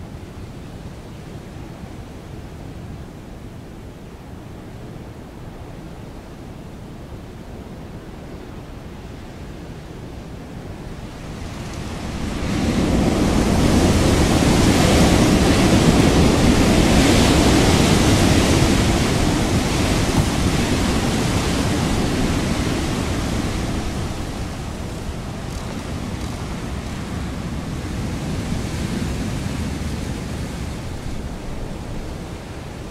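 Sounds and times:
wind gusting: 8.9 - 32.9.

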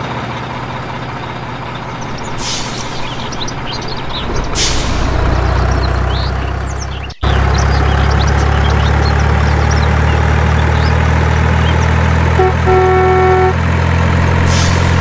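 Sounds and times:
heavy truck engine running: 0.0 - 15.0
small birds chirping: 0.6 - 12.1
air brake hisses: 2.4 - 3.2, 14.5 - 15.0.

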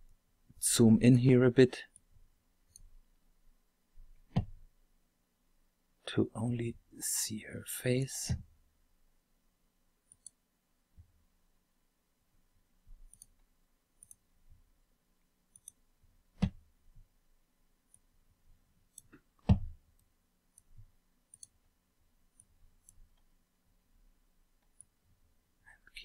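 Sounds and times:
computer mouse clicking: 10.1 - 10.4, 13.1 - 13.4, 14.0 - 14.2, 15.5 - 15.8, 21.3 - 21.6.

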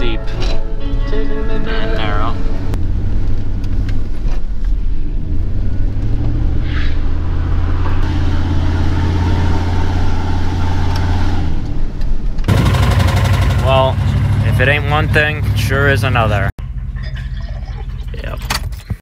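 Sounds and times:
road noise: 0.0 - 19.0
truck engine running: 12.4 - 18.1.

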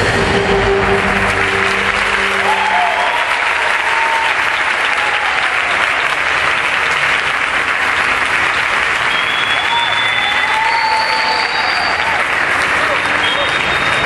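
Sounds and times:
music: 0.0 - 5.1
audience applauding: 0.0 - 14.0.

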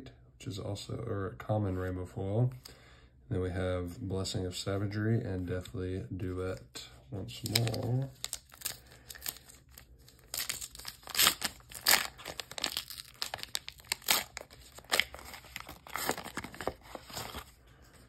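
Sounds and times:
foil ripping: 7.4 - 17.5
foil wrapper crackling: 7.4 - 17.5.

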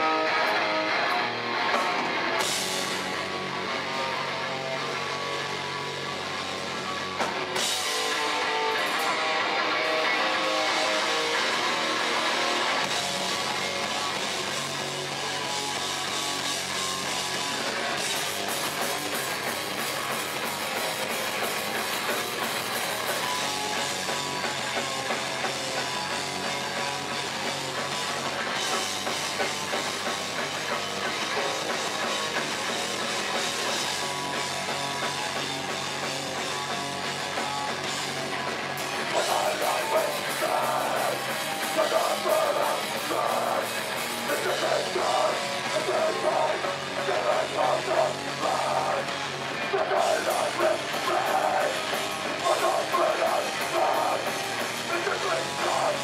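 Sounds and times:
bass guitar: 0.0 - 56.0
distorted electric guitar: 0.0 - 56.0
drum kit with cymbals: 0.0 - 56.0.

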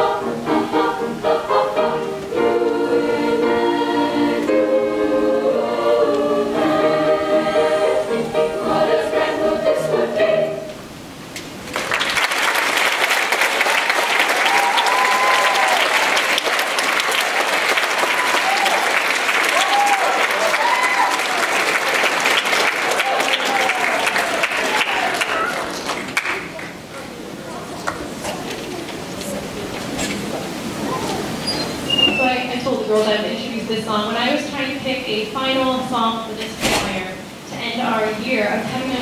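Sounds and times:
piano accompaniment: 0.0 - 10.8
girls choir singing: 0.0 - 10.9
audience applause: 11.6 - 29.8.

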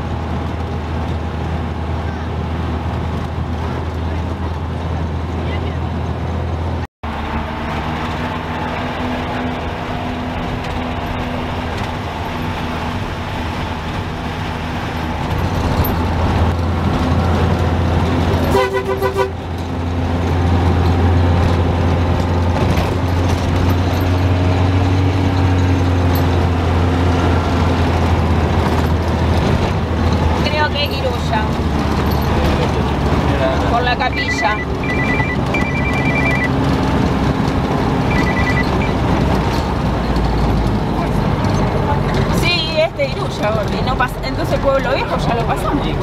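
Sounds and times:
large vehicle engine running: 0.0 - 46.0
vehicle horn: 18.5 - 19.4.

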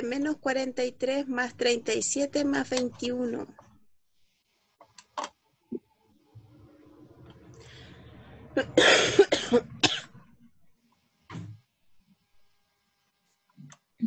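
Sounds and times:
person coughing: 8.6 - 10.1.

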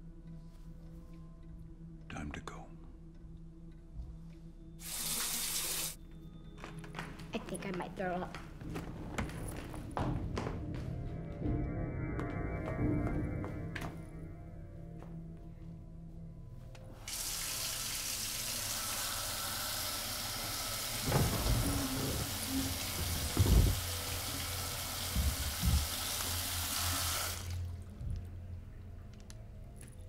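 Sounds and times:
water running from tap into sink: 4.8 - 6.0, 17.1 - 27.6
short low thuds: 23.1 - 23.9.

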